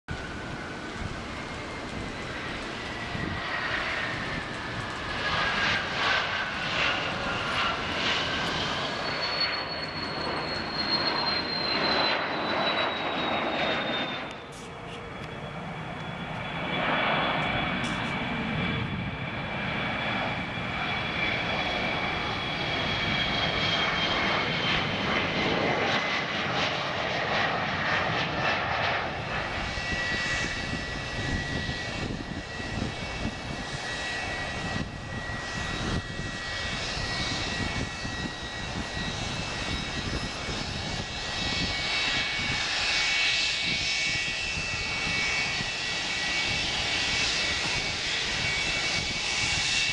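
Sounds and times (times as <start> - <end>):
jet engines whining: 0.1 - 49.9
taxiing jet whine: 0.1 - 49.9.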